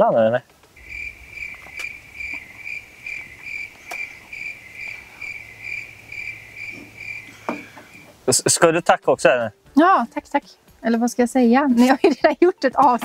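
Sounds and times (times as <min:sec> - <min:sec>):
cricket chirping: 0:00.7 - 0:08.2.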